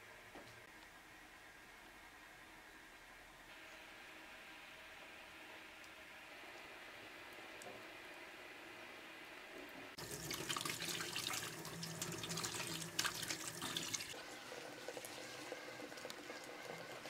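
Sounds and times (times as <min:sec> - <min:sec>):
water running into metal sink: 0:10.0 - 0:17.0.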